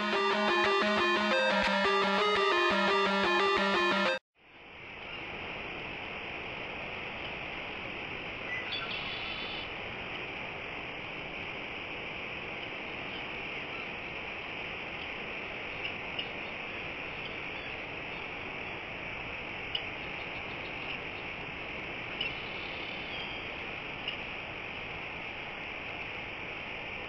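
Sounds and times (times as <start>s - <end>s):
steady outdoor hiss: 4.4s - 27.0s.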